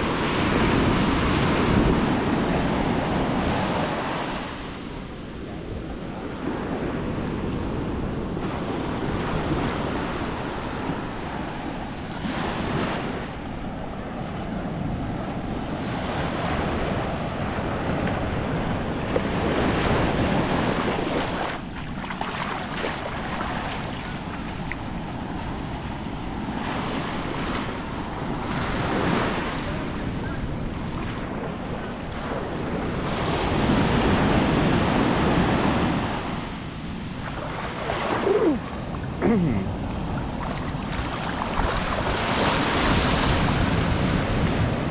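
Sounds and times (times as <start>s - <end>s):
surf breaking on shore: 26.5s - 44.9s.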